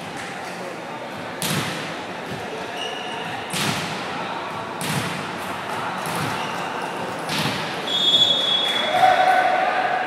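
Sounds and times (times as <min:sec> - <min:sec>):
volleyball impacts echoing: 0:01.3 - 0:02.4, 0:03.2 - 0:06.6, 0:07.2 - 0:09.3.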